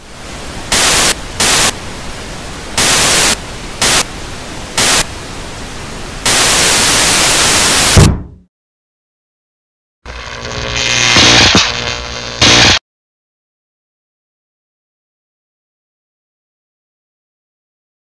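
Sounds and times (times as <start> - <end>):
television static hiss: 0.0 - 8.0, 10.1 - 12.8.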